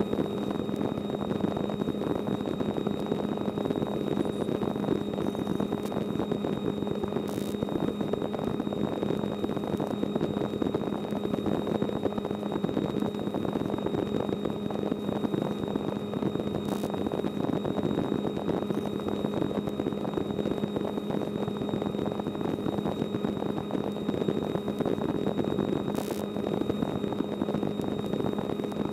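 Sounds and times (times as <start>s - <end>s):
faint high whine: 0.0s - 28.9s
small aircraft engine droning: 0.0s - 28.9s.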